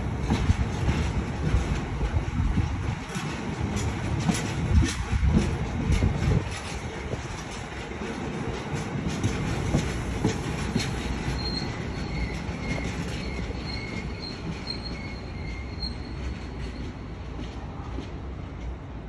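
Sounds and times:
freight train rumbling on rails: 0.0s - 19.0s
high-pitched wheel squeal: 11.3s - 16.8s.

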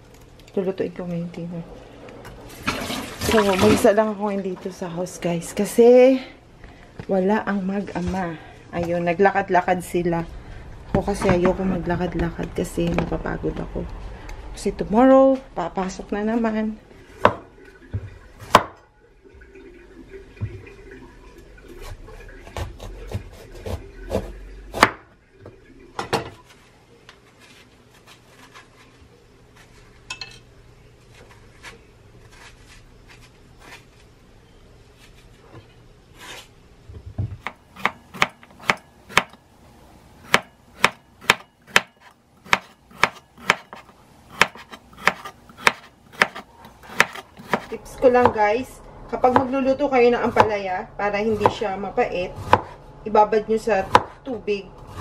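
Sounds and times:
cleaver chopping on wooden board: 40.3s - 43.8s, 44.4s - 47.7s.

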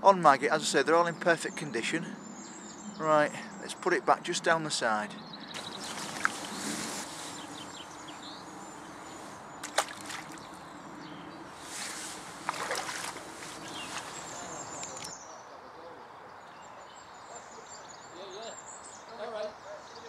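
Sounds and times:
water sloshing: 5.6s - 8.1s, 9.0s - 10.7s, 11.7s - 15.1s.

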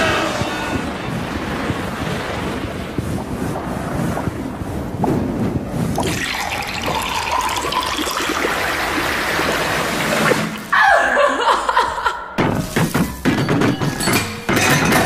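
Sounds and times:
rushing crackling noise: 0.0s - 10.7s.

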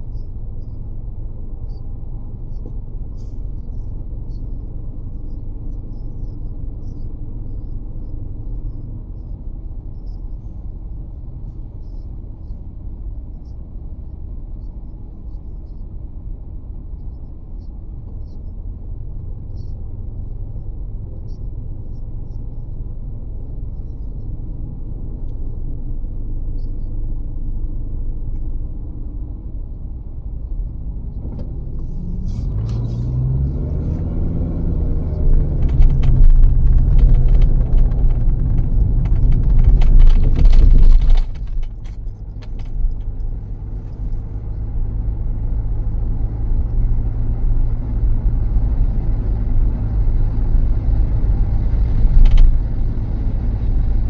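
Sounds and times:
car driving rumble: 0.0s - 54.0s
engine note rising and falling: 32.0s - 40.8s
clicks and light rattling: 35.1s - 44.2s, 52.1s - 52.6s.

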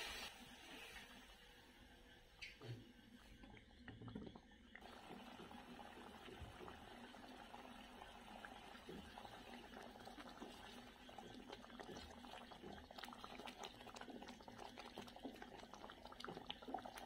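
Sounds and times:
thick puree bubbling and popping: 2.4s - 17.0s.

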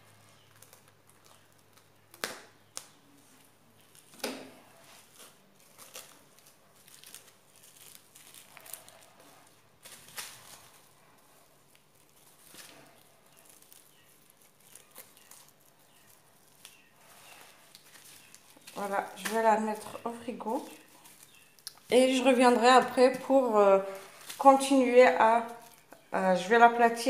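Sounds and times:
cling film crinkling: 0.0s - 27.0s.

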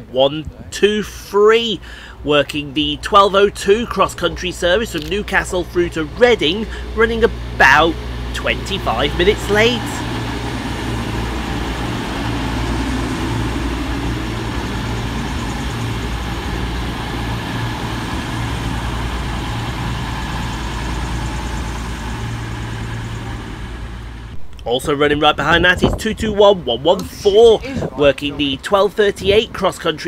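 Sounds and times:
diesel train engine drone: 0.0s - 30.0s
wheel and rail noise: 1.6s - 24.7s.

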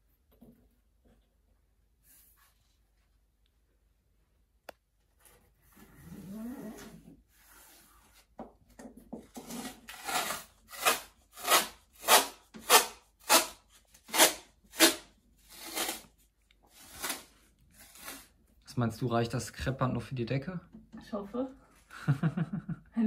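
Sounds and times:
masking tape ripping off roll: 9.9s - 18.4s.

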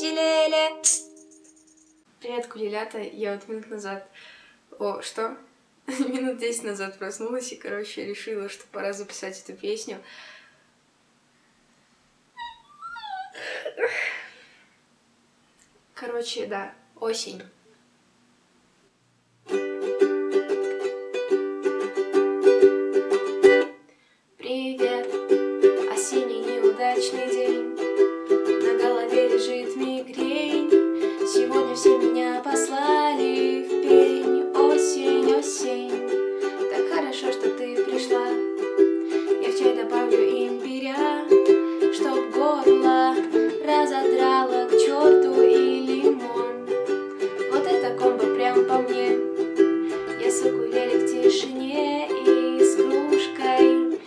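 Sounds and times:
ukulele strumming chords: 0.0s - 1.6s, 19.5s - 23.8s, 24.7s - 54.0s.

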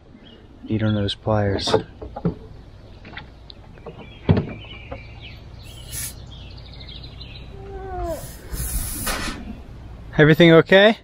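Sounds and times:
faint bird chirps: 1.9s - 9.8s.

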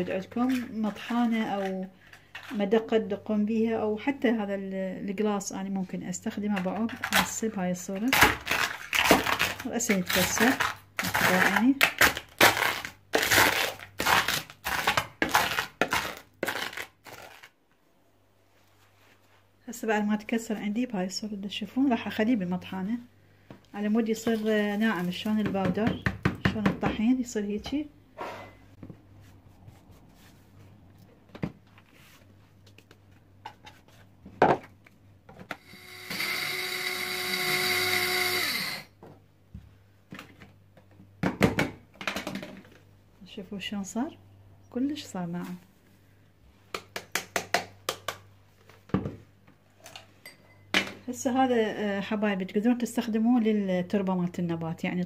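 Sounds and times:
blade grinder motor whine: 35.6s - 38.9s.

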